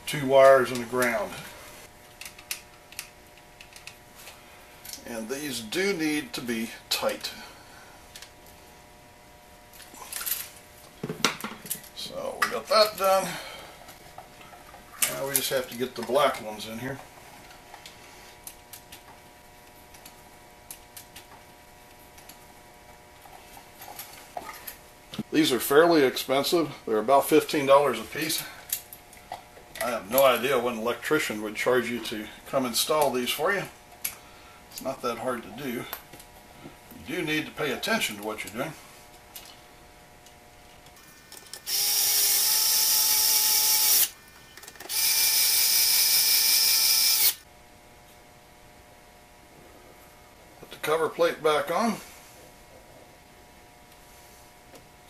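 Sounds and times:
faint steady hum: 0:00.0 - 0:55.0
power screwdriver running: 0:41.4 - 0:44.1, 0:44.9 - 0:47.4.

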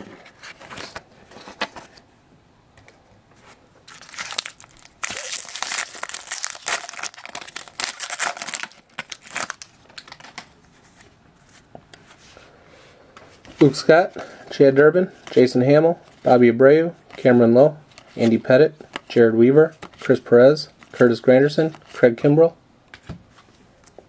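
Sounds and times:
foil wrapper crinkling: 0:03.9 - 0:10.5.

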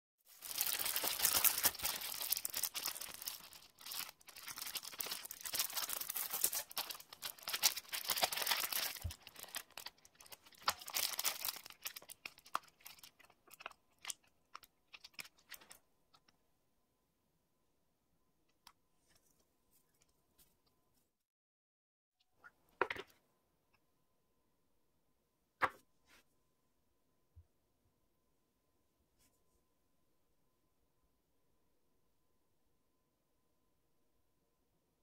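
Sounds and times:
plastic sheet crinkling: 0:00.3 - 0:15.8.

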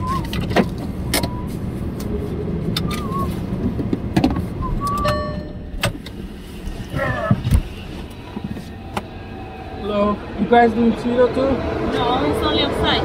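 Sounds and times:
low rumble inside a car: 0:00.0 - 0:13.0
wavering high whistles: 0:02.9 - 0:03.5.

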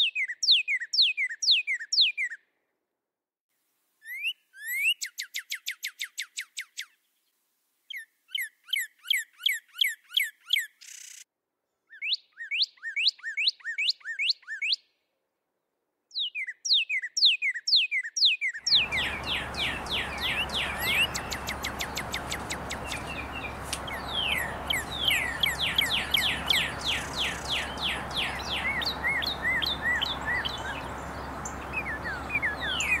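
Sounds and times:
cardinal singing whistles: 0:16.2 - 0:33.0
background hiss: 0:18.7 - 0:33.0
low hum: 0:18.7 - 0:33.0.

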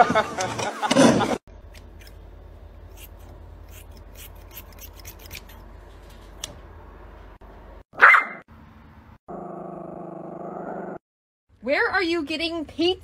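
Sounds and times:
scissors snipping fur: 0:01.7 - 0:02.2, 0:02.9 - 0:05.6
dog barking: 0:08.0 - 0:08.4.

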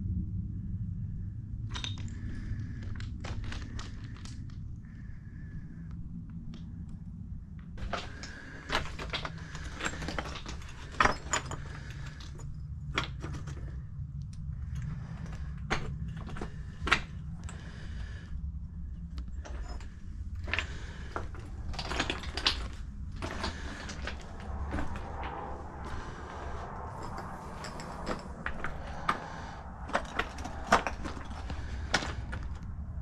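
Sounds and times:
steady low rumble: 0:00.0 - 0:33.0
stones clinking underfoot: 0:01.7 - 0:05.0, 0:07.6 - 0:18.2, 0:19.0 - 0:32.8
footsteps on rocky trail: 0:07.8 - 0:12.2, 0:20.4 - 0:32.6.

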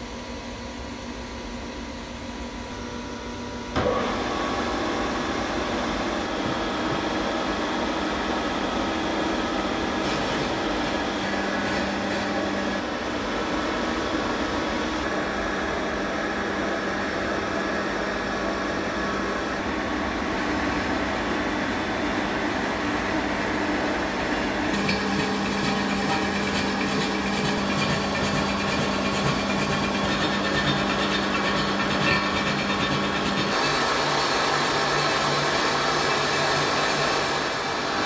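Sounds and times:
machine hum: 0:00.0 - 0:38.0
cutter scraping steel: 0:24.7 - 0:33.7.

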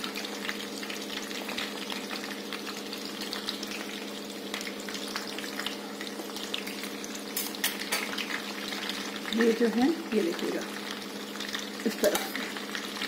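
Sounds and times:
vegetables sizzling in oil: 0:00.0 - 0:13.0
spoon turning food in pan: 0:06.6 - 0:09.2.

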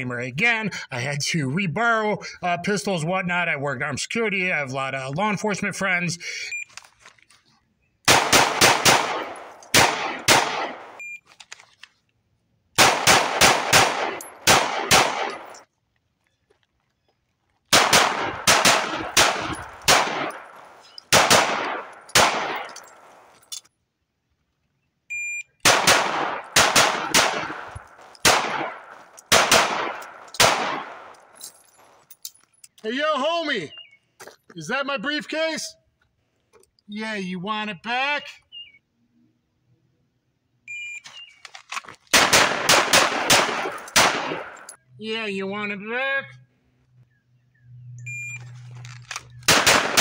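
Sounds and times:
pistol shots: 0:08.1 - 0:11.0, 0:12.8 - 0:15.6, 0:17.7 - 0:23.3, 0:25.6 - 0:31.4, 0:42.1 - 0:44.7, 0:49.4 - 0:50.0.

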